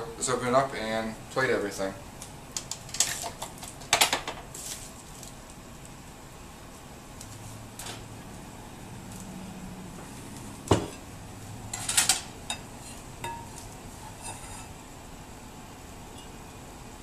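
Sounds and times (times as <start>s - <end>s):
dishes clinking: 11.7s - 14.7s.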